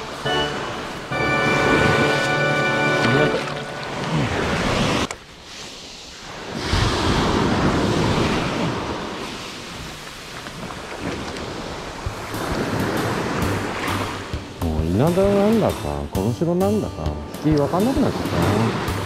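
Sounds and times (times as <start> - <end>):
surf breaking on beach: 0.0 - 15.8, 17.5 - 19.0
wind buffeting microphone: 6.3 - 14.6.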